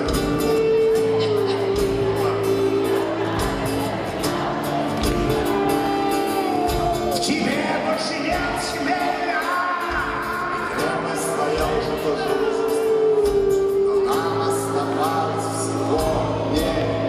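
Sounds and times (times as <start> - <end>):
electric guitar: 0.0 - 17.0
steady drum beat: 0.0 - 17.0
man singing: 5.4 - 17.0.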